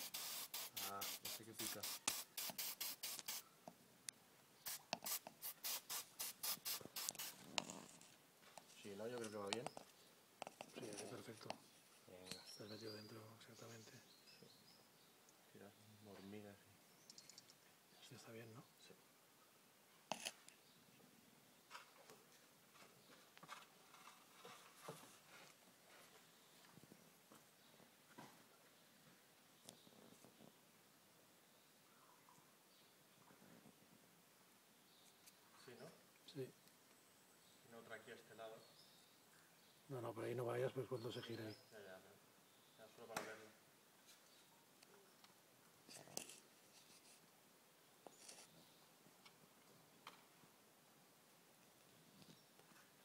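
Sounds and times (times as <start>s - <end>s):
aerosol spray hissing bursts: 0.0s - 3.4s, 4.7s - 7.4s
faint clicks and rustles: 21.7s - 30.6s.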